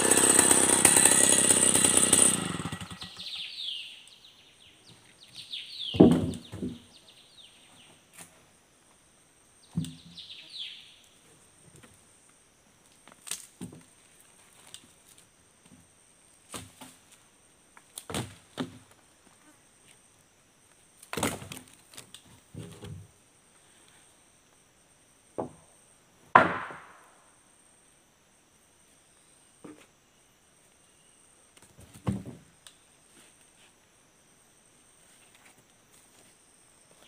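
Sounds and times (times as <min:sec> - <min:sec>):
insects buzzing: 0:00.0 - 0:37.0
wooden beams knocking and thudding: 0:05.9 - 0:06.9, 0:25.4 - 0:25.7, 0:26.3 - 0:27.1, 0:32.0 - 0:32.5.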